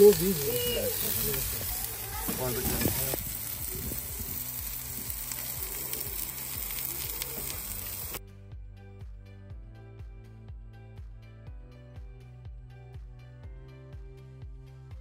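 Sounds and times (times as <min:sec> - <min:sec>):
food sizzling in frying: 0:00.0 - 0:08.2
background music with steady beat: 0:03.2 - 0:15.0.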